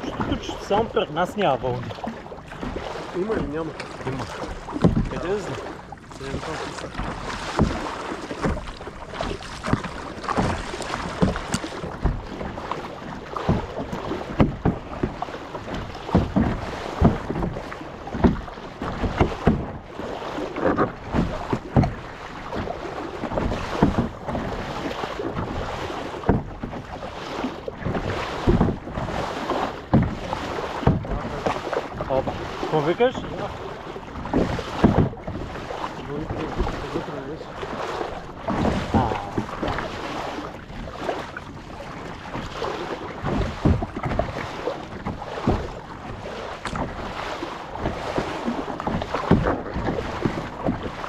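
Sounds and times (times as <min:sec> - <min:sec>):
paddles splashing in water: 0:00.0 - 0:51.0
water slapping: 0:00.0 - 0:51.0
wind on microphone: 0:38.0 - 0:51.0.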